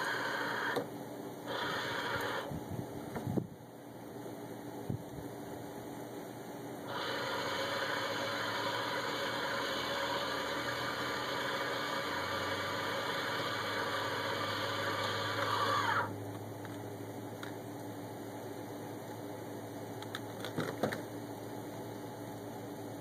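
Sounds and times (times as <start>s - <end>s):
electric winch motor whirring: 0.0s - 2.7s, 6.8s - 16.2s.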